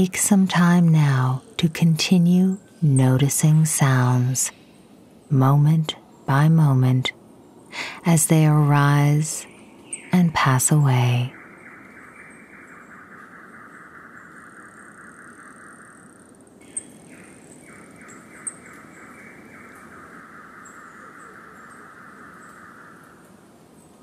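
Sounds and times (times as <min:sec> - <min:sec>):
soft steady hiss: 0:00.0 - 0:24.0.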